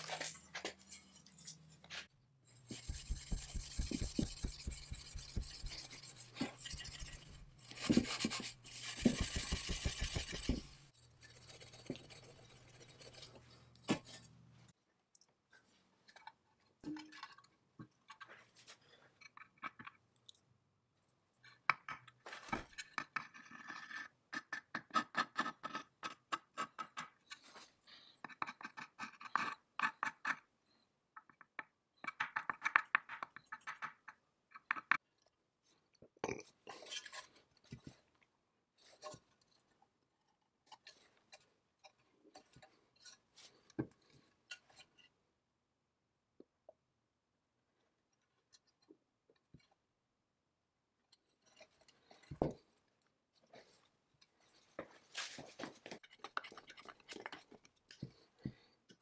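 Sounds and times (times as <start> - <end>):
sanding metal scraping: 2.6 - 13.3.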